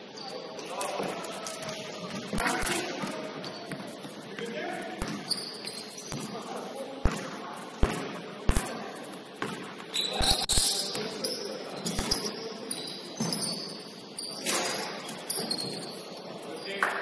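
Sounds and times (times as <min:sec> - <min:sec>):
basketball bouncing on court floor: 0:01.6 - 0:06.4, 0:07.0 - 0:08.8, 0:09.4 - 0:11.0.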